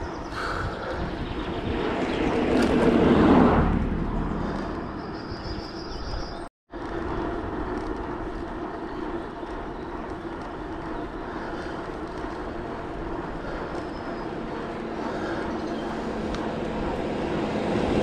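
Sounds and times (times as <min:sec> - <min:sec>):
wind and road noise from bicycle: 0:00.0 - 0:18.0.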